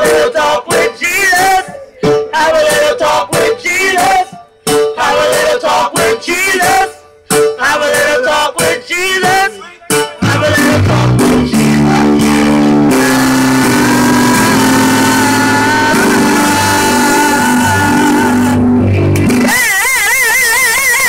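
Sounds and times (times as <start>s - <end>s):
men singing into microphones: 0.0s - 19.6s
electric keyboard chords: 9.8s - 19.6s.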